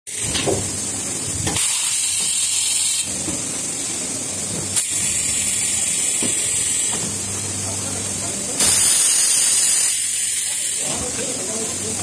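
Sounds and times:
machine hiss over low hum: 0.1 - 12.0.

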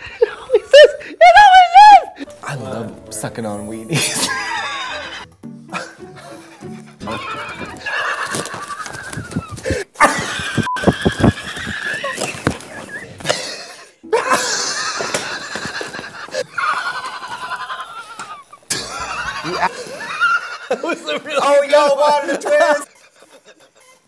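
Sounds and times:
wheezing high-pitched laughter: 22.5 - 24.0.

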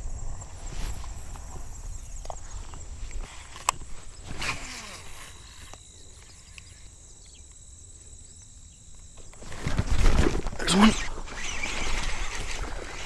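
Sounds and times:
fishing reel whine: 3.2 - 7.5, 9.1 - 13.0
rustling: 9.2 - 13.0
fishing rod casting: 9.4 - 13.0.

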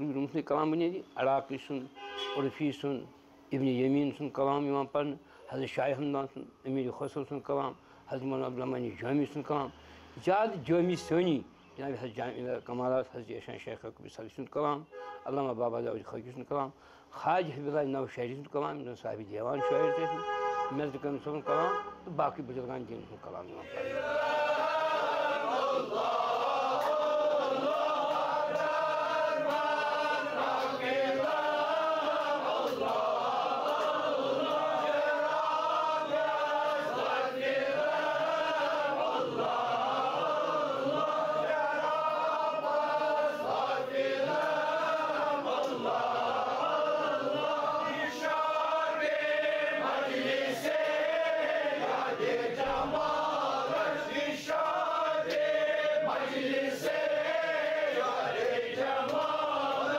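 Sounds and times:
men chanting together: 23.6 - 59.9.

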